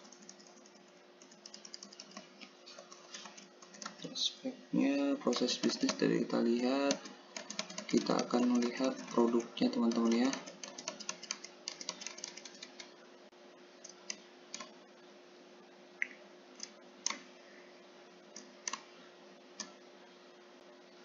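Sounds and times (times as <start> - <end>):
keyboard keystrokes: 0.0 - 2.3, 3.1 - 4.1, 5.3 - 6.1, 6.8 - 12.9.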